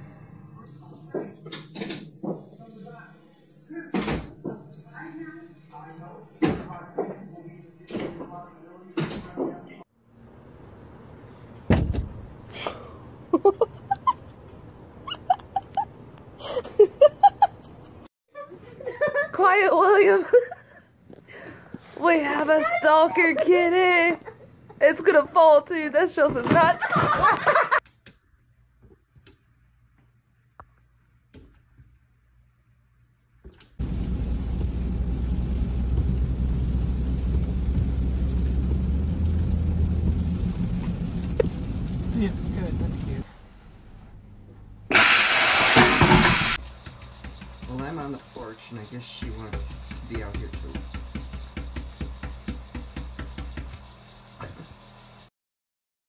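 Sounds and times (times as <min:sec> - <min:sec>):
car engine and tyres rumbling: 0:33.8 - 0:44.9
hiss of rain and spray: 0:44.9 - 0:46.6.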